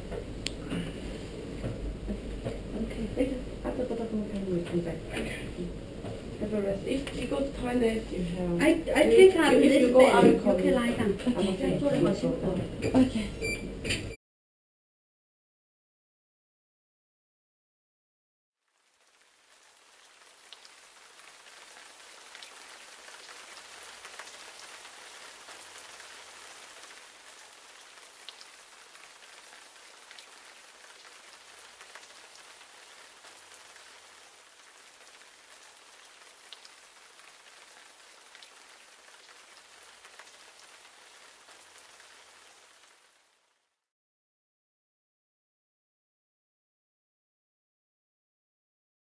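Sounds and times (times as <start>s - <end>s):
rain-like hiss: 0.0s - 13.2s, 18.6s - 43.9s.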